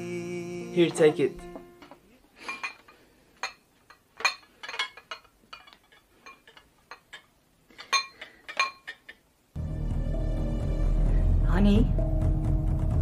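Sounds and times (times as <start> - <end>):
china bowl clinking on tray: 2.4 - 9.2
loud music: 9.6 - 13.0.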